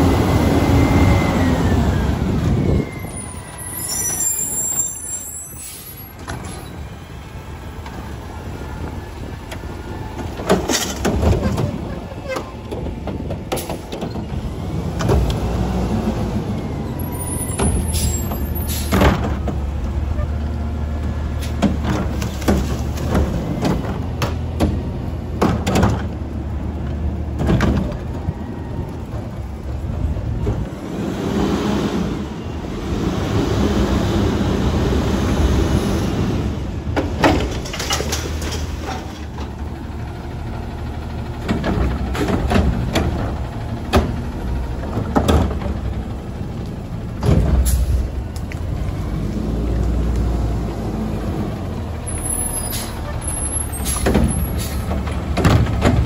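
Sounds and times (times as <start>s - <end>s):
garbage truck engine running: 6.1s - 56.0s
metal clanks and bangs: 36.9s - 39.6s.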